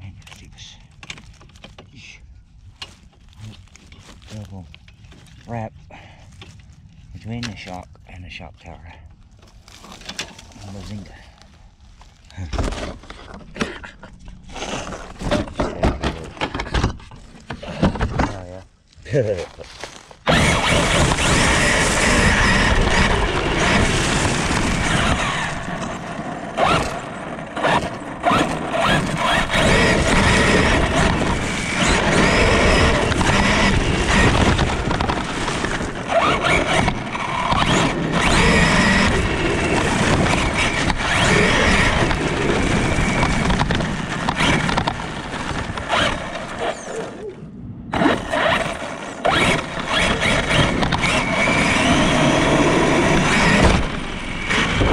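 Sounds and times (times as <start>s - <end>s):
lawnmower engine running: 19.8s - 47.2s, 47.9s - 54.9s
electric motor whine: 20.2s - 47.2s, 47.9s - 54.9s.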